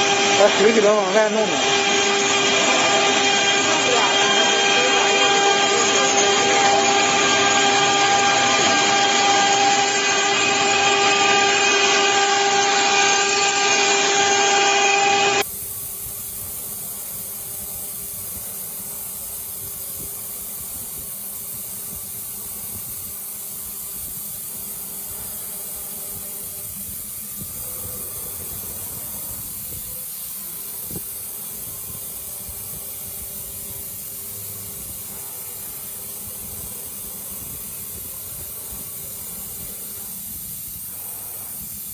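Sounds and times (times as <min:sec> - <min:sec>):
router spindle whine: 0:00.0 - 0:15.5
wood cutting noise: 0:00.0 - 0:15.5
engraver hiss and hum: 0:00.0 - 0:41.9.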